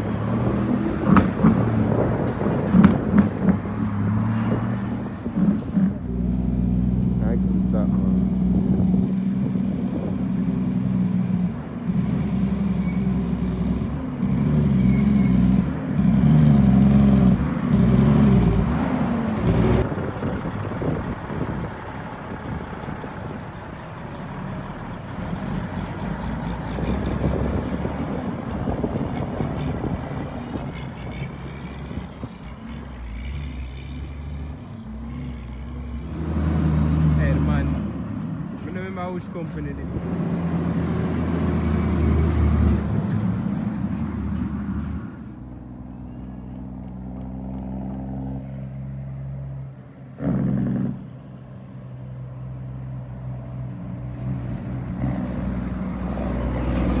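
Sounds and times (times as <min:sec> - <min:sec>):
road noise: 0:00.0 - 0:57.0
diesel truck engine running: 0:13.8 - 0:33.4.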